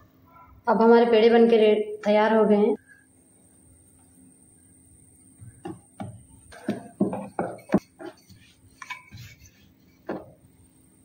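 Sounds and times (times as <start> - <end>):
rolling pin thudding on board: 5.4 - 8.2.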